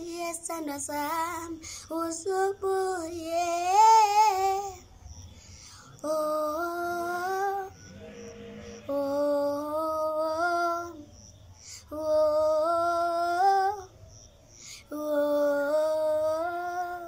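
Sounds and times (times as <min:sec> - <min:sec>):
boy singing: 0:00.0 - 0:04.8, 0:06.0 - 0:07.7, 0:08.8 - 0:11.0, 0:14.9 - 0:17.0.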